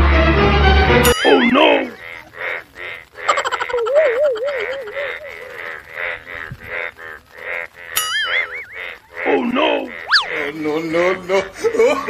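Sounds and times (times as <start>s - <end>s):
warbling wobbling tone: 1.1s - 10.5s
short cartoon pulses: 10.0s - 10.4s.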